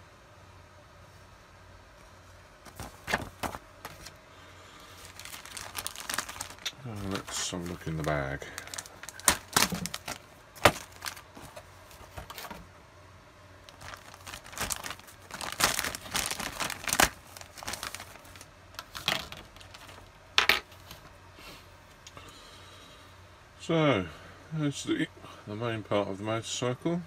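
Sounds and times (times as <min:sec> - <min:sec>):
plastic bag crinkling: 0:02.6 - 0:04.2, 0:04.8 - 0:12.6, 0:13.6 - 0:20.1.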